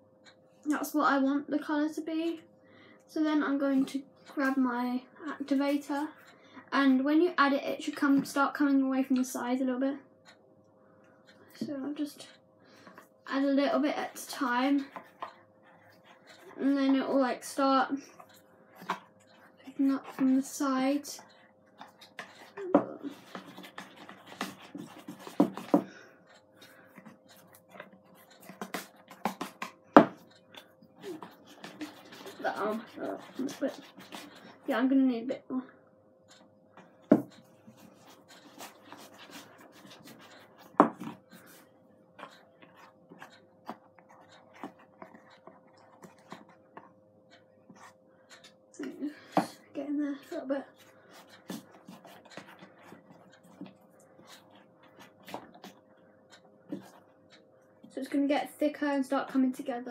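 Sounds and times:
faint steady hum: 0.0s - 59.9s
spoon scraping plastic tub: 31.0s - 34.8s, 37.8s - 41.6s
stick scraping plastic tub: 31.0s - 34.8s.

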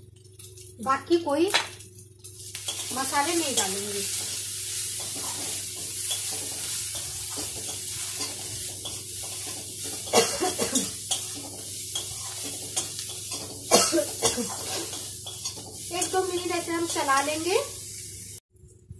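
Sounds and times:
vegetables sizzling in oil: 0.0s - 18.4s
metal spatula scraping pan: 2.6s - 17.4s.

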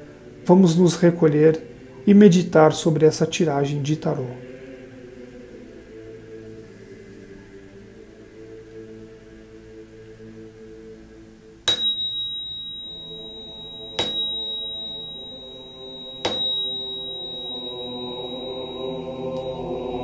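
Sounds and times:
quiet background music: 0.0s - 20.0s
bell ringing in high pure tone: 11.7s - 20.0s.

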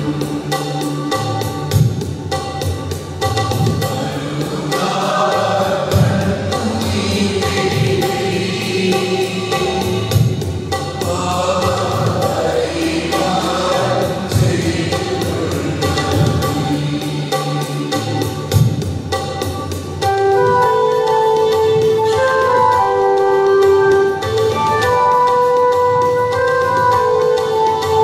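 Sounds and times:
electronic keyboard: 0.0s - 28.0s
choir singing a hymn: 3.8s - 18.6s.

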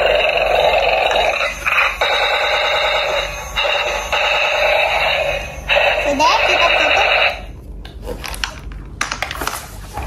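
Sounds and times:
toy tank electronic beeping: 0.0s - 7.5s.

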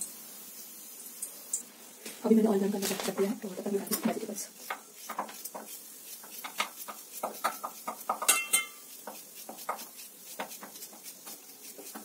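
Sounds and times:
knife cutting potato: 3.9s - 12.0s
pieces clinking into steel bowl: 8.2s - 8.9s.

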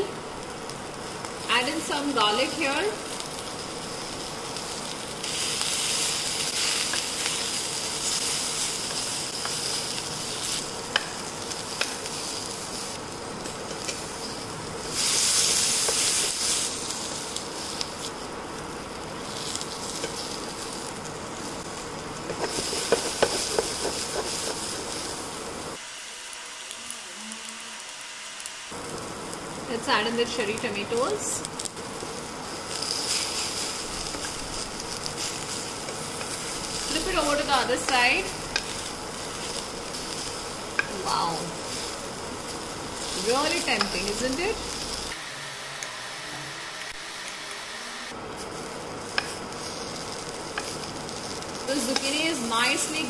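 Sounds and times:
vegetables sizzling in hot oil: 0.0s - 53.0s.

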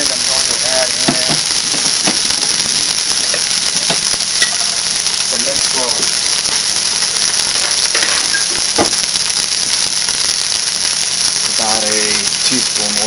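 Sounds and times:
meat sizzling in oil: 0.0s - 13.0s.

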